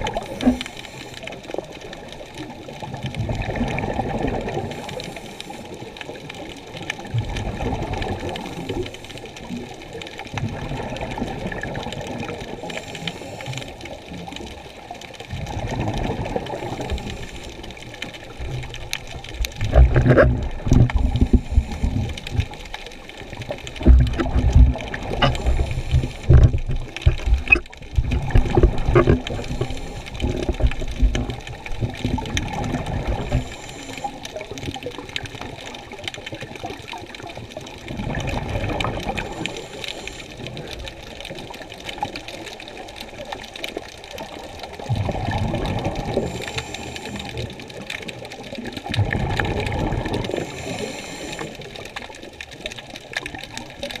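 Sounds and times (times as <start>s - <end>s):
muffled underwater thumps and swishes: 0.0s - 1.8s, 10.2s - 42.3s, 44.1s - 52.1s
underwater rushing water hiss: 0.0s - 54.0s.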